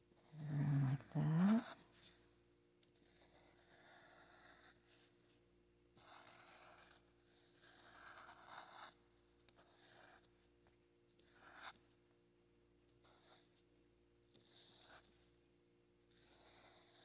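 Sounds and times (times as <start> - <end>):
marker pen scratching on paper: 2.8 - 5.3, 6.0 - 10.5, 11.1 - 11.9, 12.9 - 13.7, 14.3 - 15.3, 16.0 - 17.0.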